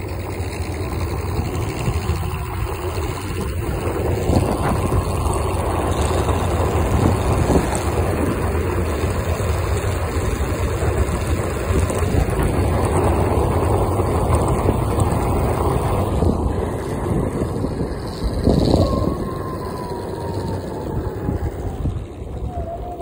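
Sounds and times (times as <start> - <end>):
skateboard wheels rumbling on asphalt: 0.0 - 23.0.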